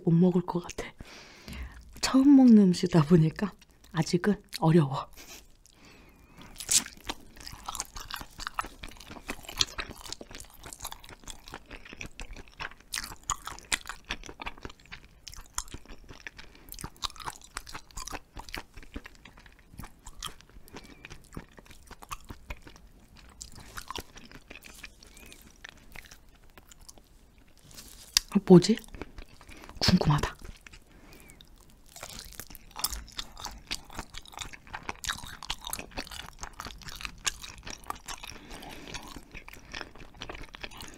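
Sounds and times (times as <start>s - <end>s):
chewing with clicks and smacks: 5.3s - 40.9s
sharp bite: 6.6s - 7.0s.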